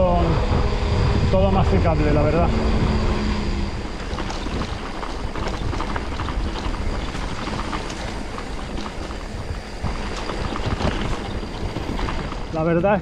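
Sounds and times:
bike tyres clicking and rattling: 0.0 - 13.0
wind rumble on microphone: 0.0 - 13.0.

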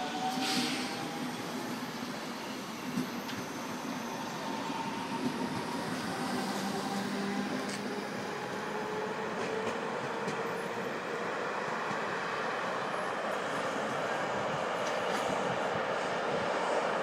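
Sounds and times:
wheels rushing on rail: 0.0 - 17.0.

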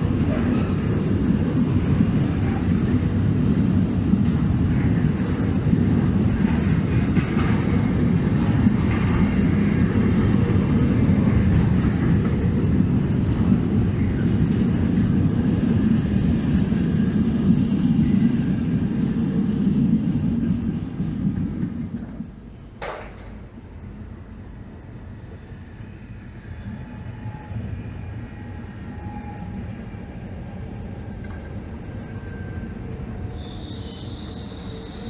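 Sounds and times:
freight train wheels rumbling: 0.0 - 35.0.

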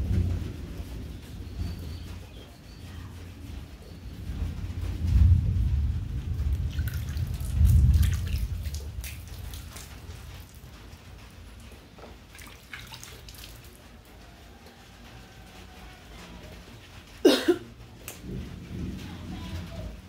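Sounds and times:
heavy low rumble: 0.0 - 11.8, 15.9 - 20.0
water splashing and dripping: 3.4 - 20.0.

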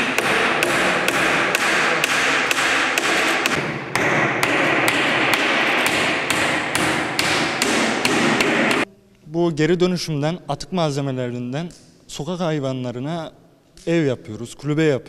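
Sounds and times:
hammer blows on wooden planks: 0.0 - 8.9.

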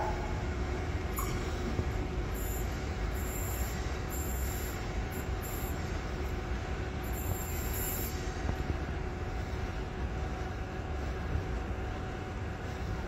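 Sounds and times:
electric train rumbling slowly: 0.0 - 13.0.

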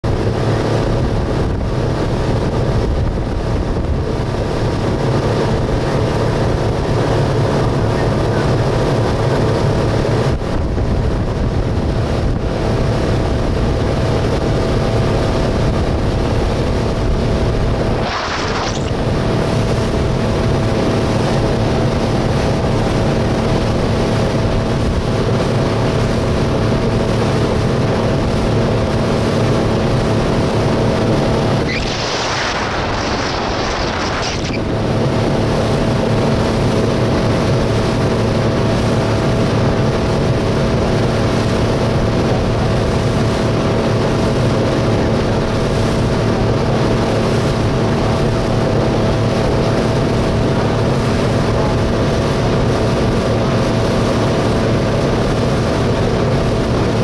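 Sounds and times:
hull rushing through water: 0.0 - 57.0
outboard motor running: 0.0 - 57.0
wind on microphone: 0.0 - 57.0.

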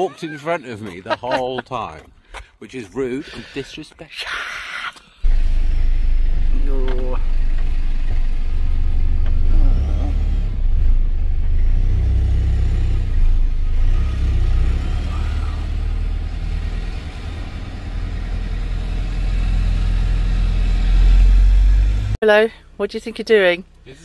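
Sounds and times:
diesel engine rumbling: 5.2 - 24.0.

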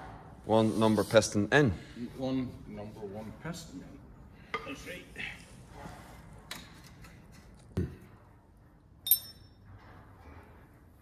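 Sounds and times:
metal tools clicking and knocking: 9.0 - 9.6
sharp metallic clink: 9.0 - 9.6.

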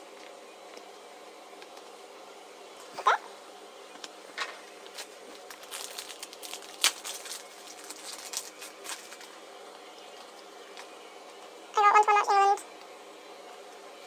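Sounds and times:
cards being shuffled: 4.0 - 9.4
foil wrappers crinkling: 4.8 - 9.4.

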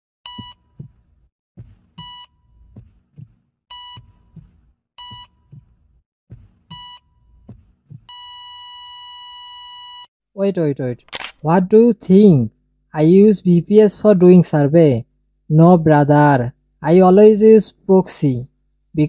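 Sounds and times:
heartbeat thumps: 0.3 - 8.3.

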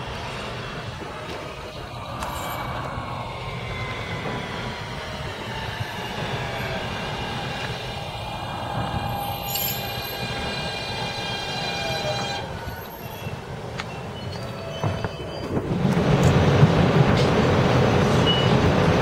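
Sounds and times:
electric propulsion whine: 0.0 - 13.1
subway train braking to a stop: 0.0 - 19.0.

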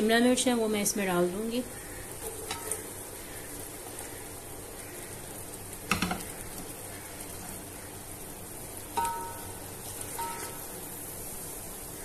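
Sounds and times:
vegetables sizzling in oil: 0.0 - 12.0
peppers tumbling into pot: 5.8 - 6.8, 8.9 - 10.7.

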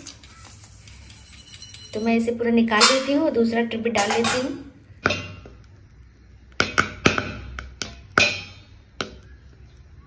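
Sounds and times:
metal lid clank: 2.7 - 3.3, 4.0 - 5.5.

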